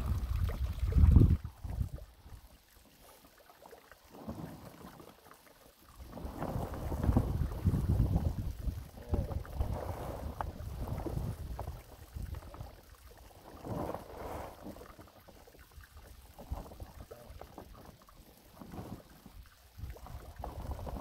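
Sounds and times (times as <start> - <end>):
wind buffeting microphone: 0.0 - 2.0, 6.6 - 12.5.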